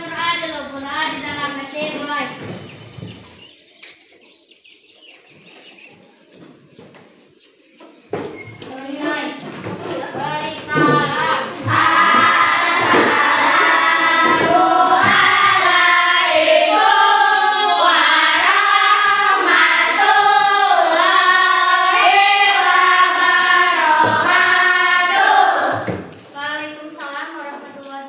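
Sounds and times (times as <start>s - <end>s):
children singing in unison: 9.5s - 26.1s.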